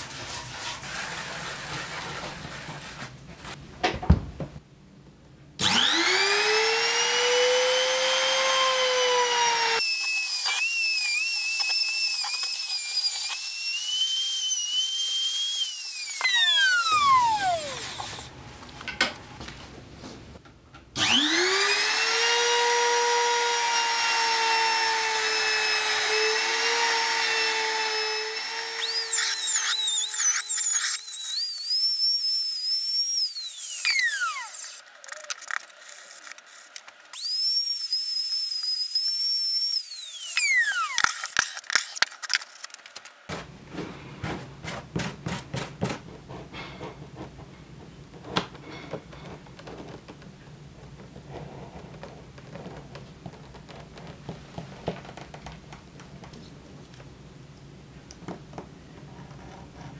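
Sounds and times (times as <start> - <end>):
trim router whining: 5.6 - 18.3, 21.0 - 35.3, 37.2 - 42.0.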